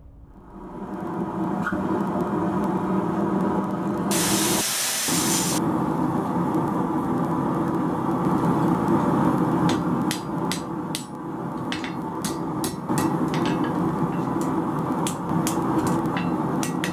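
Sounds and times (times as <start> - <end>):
gas forge roaring: 0.2 - 16.9.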